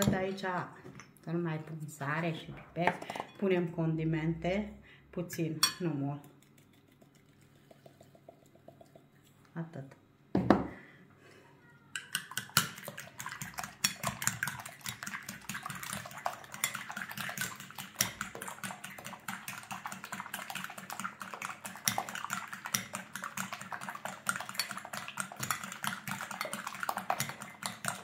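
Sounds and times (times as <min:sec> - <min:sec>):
fork beating eggs in glass bowl: 0:05.6 - 0:09.1, 0:12.0 - 0:28.0.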